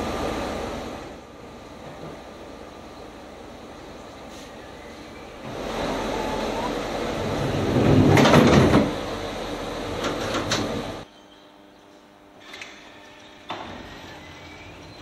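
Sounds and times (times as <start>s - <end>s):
train doors sliding shut: 1.8s - 2.4s, 4.2s - 11.0s, 12.4s - 14.9s.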